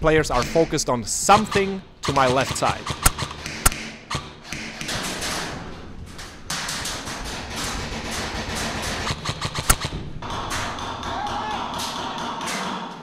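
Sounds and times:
distant airsoft gunfire clicks: 0.4s - 5.0s, 9.0s - 10.0s.

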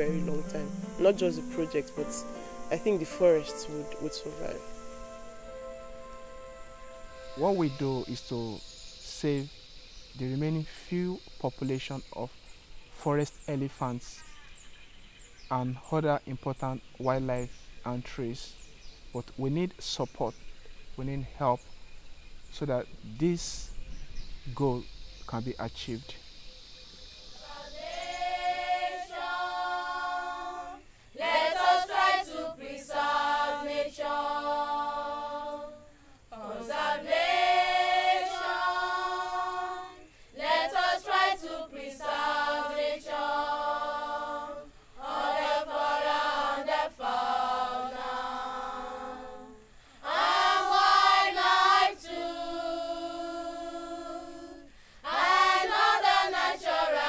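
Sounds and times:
children singing unaccompanied: 0.0s - 9.5s, 27.3s - 57.0s.

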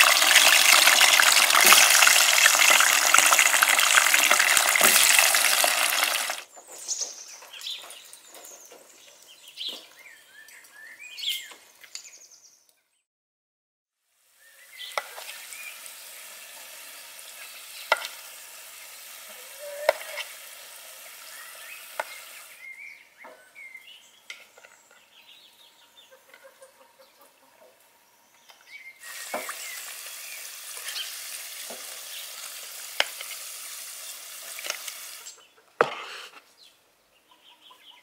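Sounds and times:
potatoes sizzling in hot oil: 0.0s - 6.5s, 14.2s - 22.6s, 29.0s - 35.4s.

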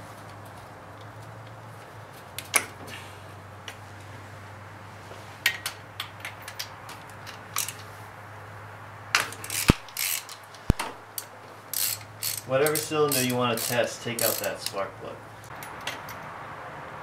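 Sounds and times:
ratchet and socket clicking: 7.3s - 7.9s, 9.2s - 14.8s.

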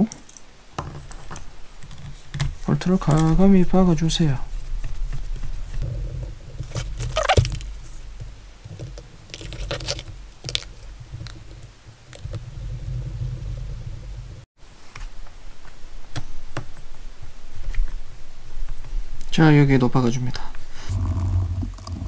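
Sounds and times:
small parts clicking and rustling: 0.0s - 3.6s, 5.8s - 12.6s.

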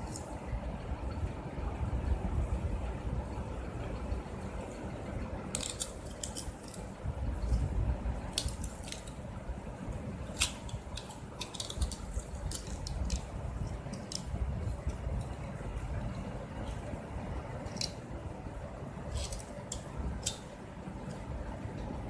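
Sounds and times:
plastic parts clicking: 5.5s - 7.6s, 8.3s - 9.2s, 10.3s - 15.4s, 17.6s - 18.0s, 19.1s - 21.2s.

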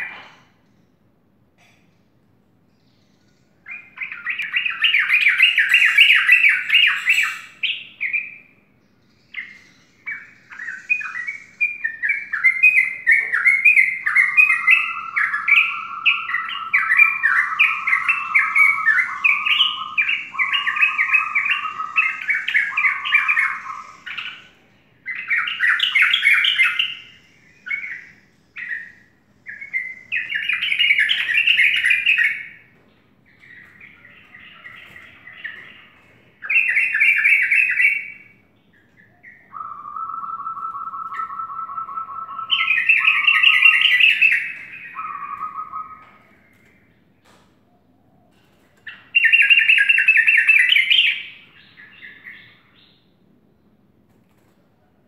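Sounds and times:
bird singing chattering notes: 2.8s - 32.5s, 33.3s - 46.9s.

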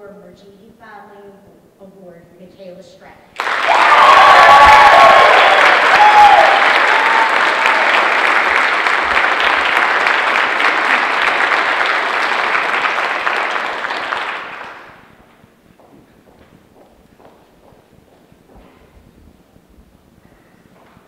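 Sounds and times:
audience applauding: 3.4s - 15.2s.

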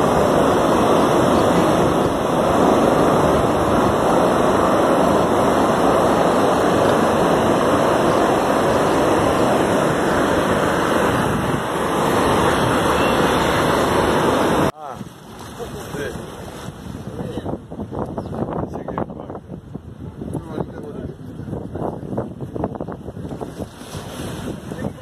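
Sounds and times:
surf breaking on beach: 0.0s - 17.8s, 21.8s - 25.0s
wind: 0.0s - 25.0s.

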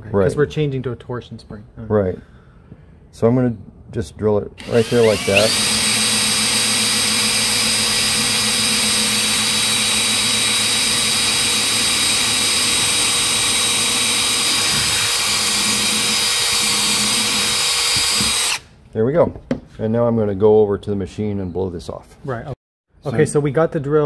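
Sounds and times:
cordless drill whining: 4.6s - 18.7s.

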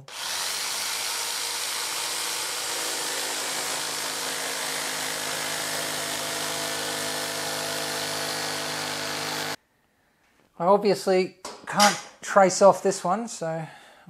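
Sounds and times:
jigsaw cutting acrylic: 0.0s - 9.6s.

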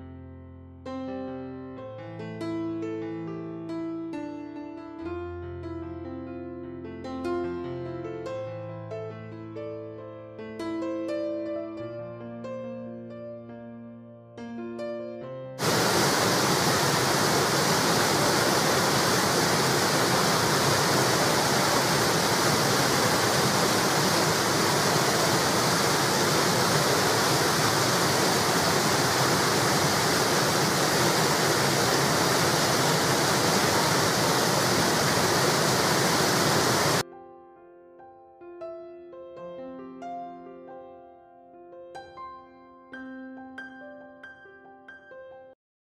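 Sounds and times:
soft piano music: 0.0s - 15.7s, 37.0s - 45.6s
water rushing over weir: 15.6s - 37.0s.

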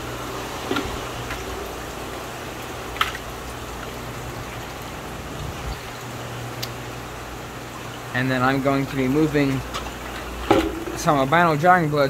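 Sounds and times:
fish tank water bubbling: 0.0s - 11.3s.

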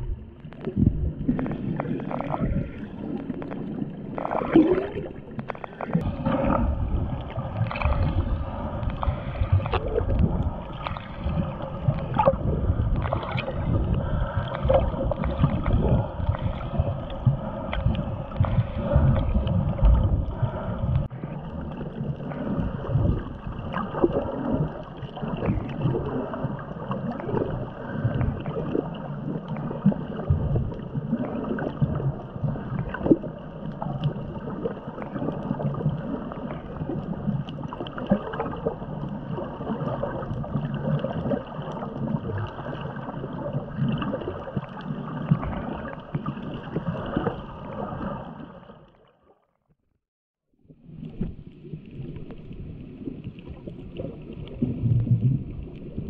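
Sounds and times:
deep rumble: 0.0s - 24.7s, 51.0s - 56.0s
crackles and pops: 0.0s - 47.4s, 50.9s - 56.0s
water sloshing and gurgling: 0.0s - 56.0s.

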